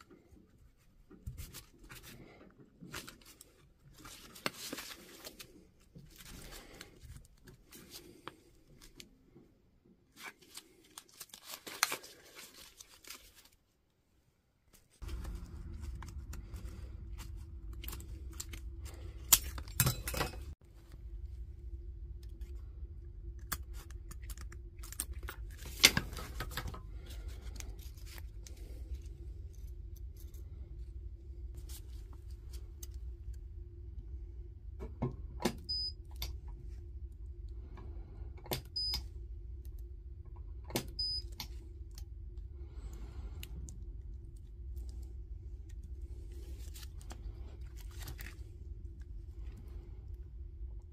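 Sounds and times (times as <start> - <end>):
steady low hum: 14.6 - 50.9.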